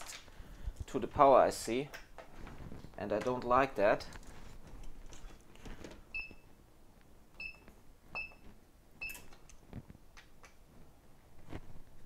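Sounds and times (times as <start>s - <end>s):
light clicks and handling noise: 1.6s - 6.0s.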